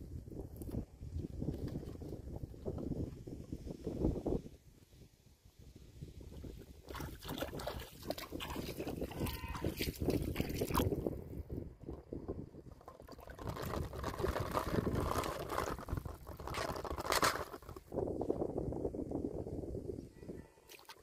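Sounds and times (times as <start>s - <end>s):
river water splashing: 6.8s - 11.0s.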